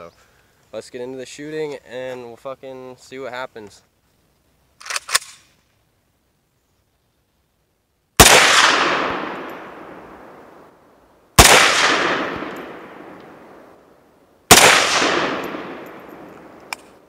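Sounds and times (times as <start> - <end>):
rifle shots with echo: 8.2 - 10.7, 11.4 - 13.8, 14.5 - 17.0.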